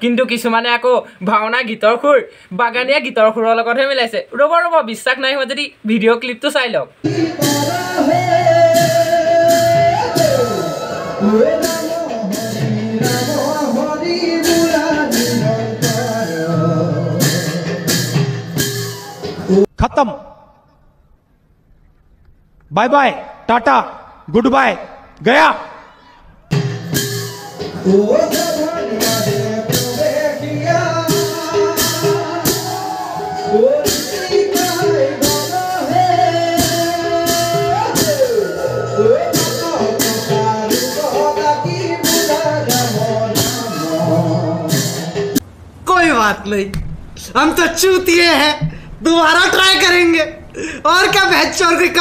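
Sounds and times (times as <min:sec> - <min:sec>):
men singing through microphones: 0:07.1 - 0:18.2, 0:27.6 - 0:45.4
instrumental accompaniment: 0:07.1 - 0:19.7, 0:26.5 - 0:45.5
sharp percussion strikes: 0:07.1 - 0:19.7, 0:26.5 - 0:45.4.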